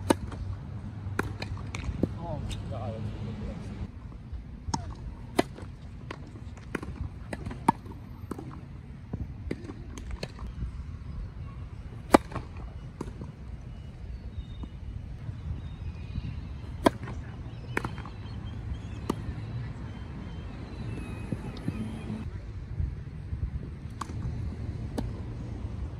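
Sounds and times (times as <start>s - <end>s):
racket hitting tennis ball: 12.1s - 12.4s, 16.8s - 17.1s.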